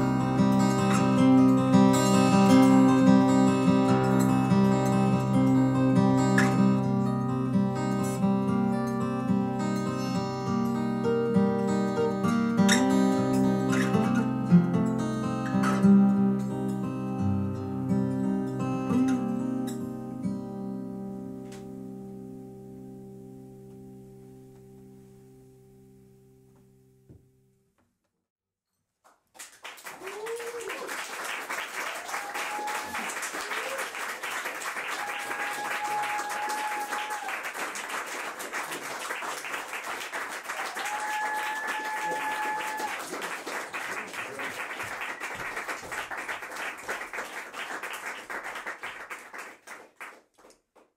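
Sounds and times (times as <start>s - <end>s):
audience applause: 29.3s - 50.6s
cheers and calls: 30.0s - 31.0s, 31.8s - 34.1s, 34.8s - 37.6s, 40.5s - 43.2s.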